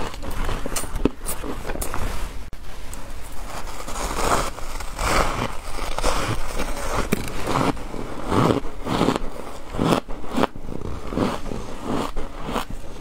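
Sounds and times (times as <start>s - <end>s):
chewing crunchy ice: 3.8s - 13.0s.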